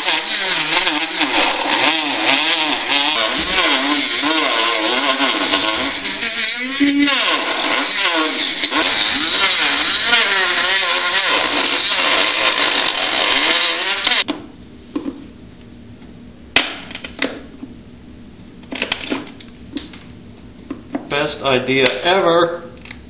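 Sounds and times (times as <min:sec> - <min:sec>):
rotary tool grinding resin: 0:00.0 - 0:14.3.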